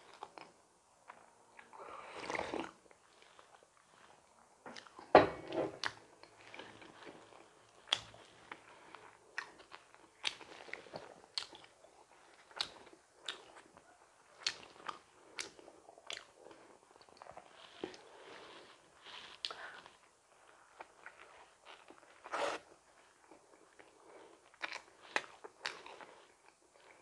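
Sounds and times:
chewing with wet smacking: 0:05.8 - 0:18.1, 0:23.2 - 0:27.0.

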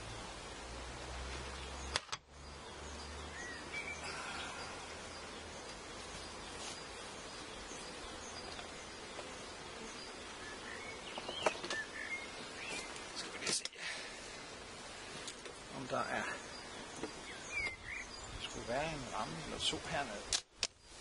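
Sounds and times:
bees buzzing: 0:00.0 - 0:20.3
steady outdoor hiss: 0:00.0 - 0:21.0
bird chirps: 0:01.5 - 0:13.6, 0:15.9 - 0:19.8.

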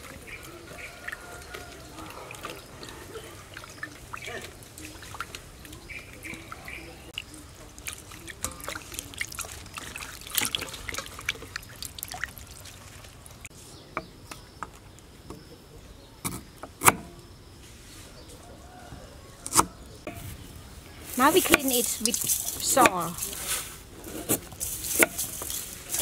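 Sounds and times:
hands splashing in bowl of water: 0:00.0 - 0:13.5
water running into bowl: 0:00.0 - 0:13.5.

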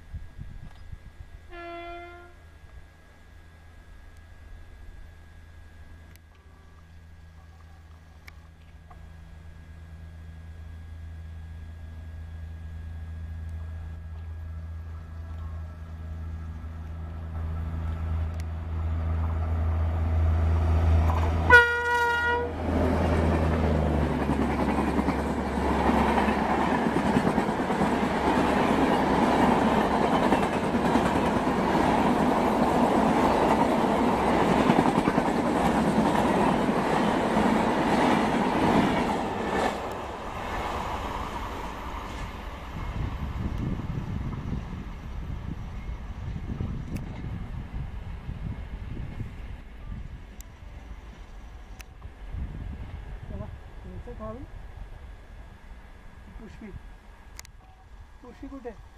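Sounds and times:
electric locomotive humming: 0:00.0 - 0:58.9
train horn blast: 0:01.4 - 0:02.6, 0:21.4 - 0:22.7
train coaches rumbling past: 0:12.9 - 0:57.3.

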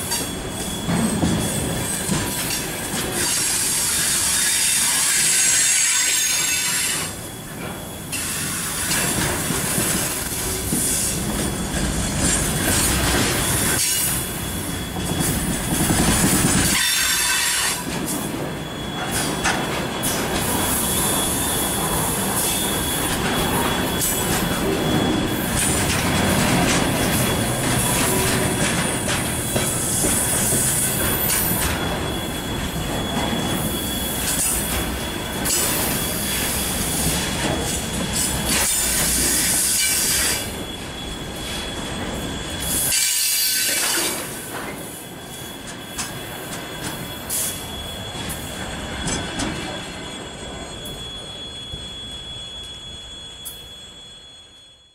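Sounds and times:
freight train wheels rumbling: 0:00.0 - 0:54.9
high wheel squeal: 0:00.0 - 0:54.9.

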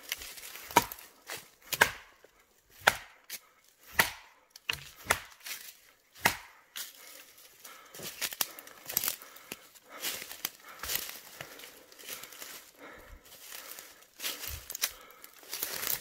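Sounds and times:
stick knocking on tree trunks: 0:00.5 - 0:06.9.

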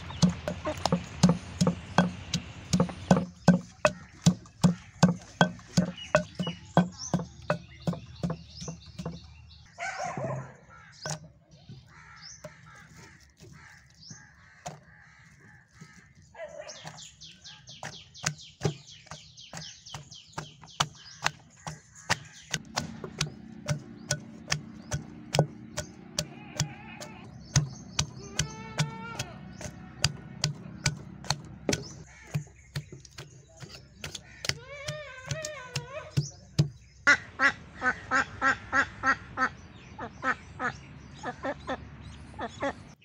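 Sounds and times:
pestle pounding in stone mortar: 0:00.0 - 0:09.3, 0:11.1 - 0:11.3, 0:17.8 - 0:36.9
small birds chirping: 0:00.0 - 0:43.0.

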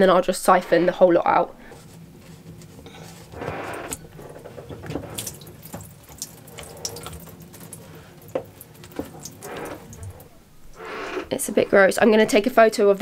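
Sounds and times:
low steady hum: 0:00.0 - 0:13.0
water trickling and dripping: 0:01.7 - 0:10.8.

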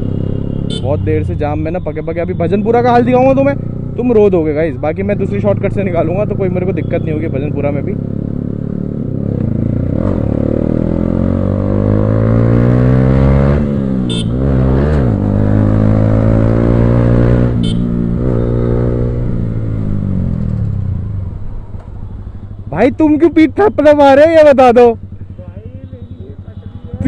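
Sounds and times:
motorcycle engine accelerating: 0:02.2 - 0:22.0.

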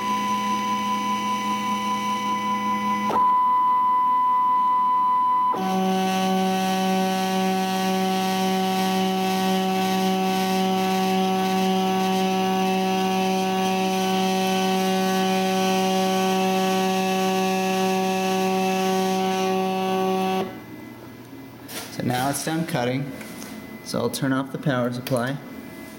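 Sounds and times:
stepper motors whining: 0:05.5 - 0:20.6.

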